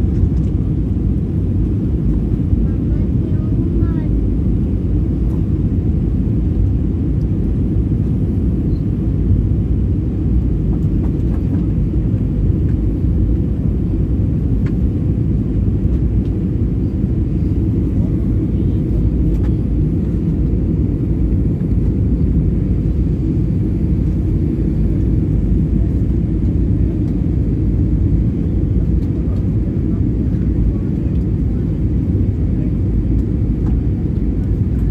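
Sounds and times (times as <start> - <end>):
airliner cabin rumble: 0.0 - 34.9.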